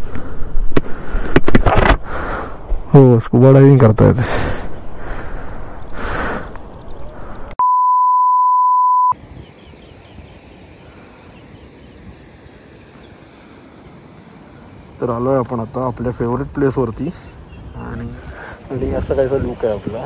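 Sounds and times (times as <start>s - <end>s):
rushing outdoor noise: 0.0s - 7.6s, 9.1s - 20.0s
electronic beep: 7.6s - 9.2s.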